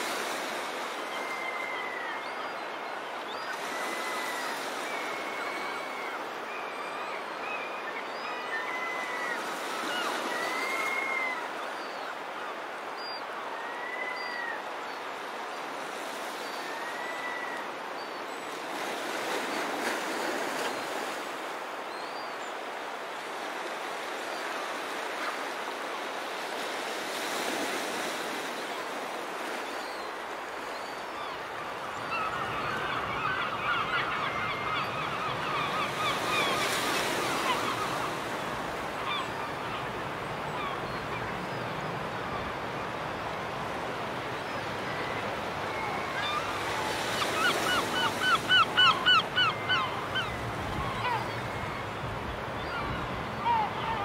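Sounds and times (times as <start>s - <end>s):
surf on a shore: 0.0s - 54.0s
flock of birds calling: 30.6s - 42.6s, 44.6s - 54.0s.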